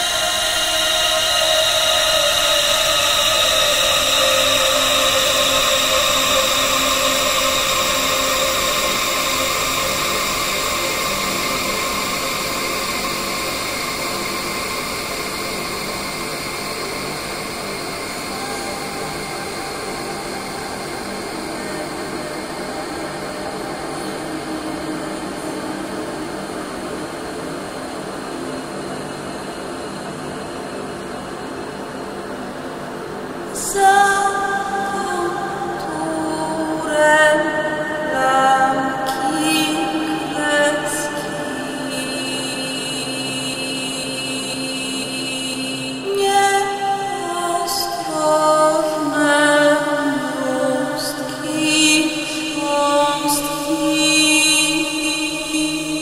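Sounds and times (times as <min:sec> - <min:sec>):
electronic ambient drone: 0:00.0 - 0:56.0.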